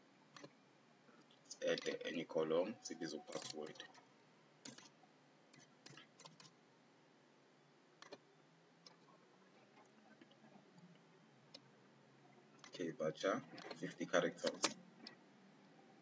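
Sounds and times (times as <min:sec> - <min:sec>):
computer keys and mouse clicks: 0:00.3 - 0:00.6, 0:04.6 - 0:04.9, 0:05.6 - 0:06.5, 0:08.0 - 0:08.2, 0:13.6 - 0:15.2.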